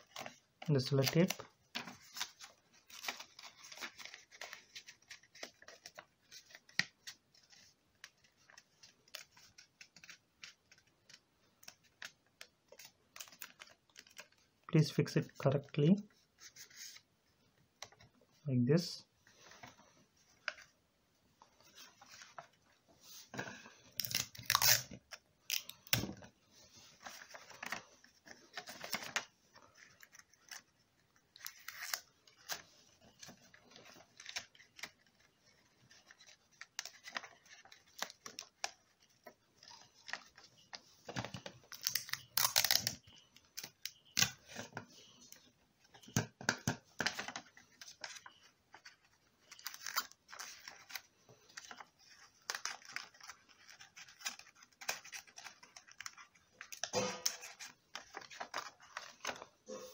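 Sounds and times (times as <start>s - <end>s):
paper rustling and crinkling: 0.0s - 15.2s, 21.6s - 59.9s
tape being pulled and torn: 24.0s - 26.0s, 41.7s - 43.0s.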